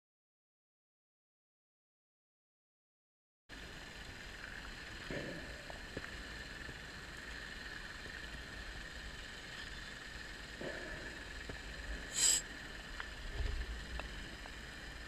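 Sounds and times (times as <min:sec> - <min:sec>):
faint high whine: 0:03.5 - 0:15.0
underwater hiss: 0:10.6 - 0:12.8.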